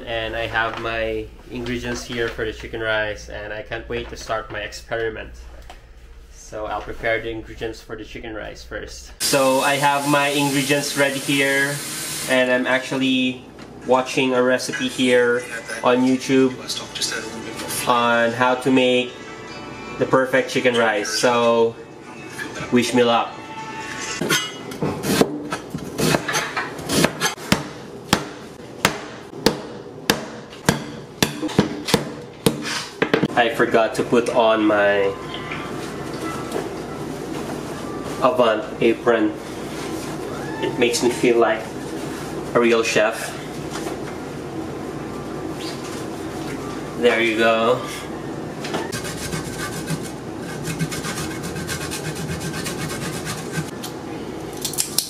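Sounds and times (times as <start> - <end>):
ginger rasping on a metal grater: 48.9 - 53.7.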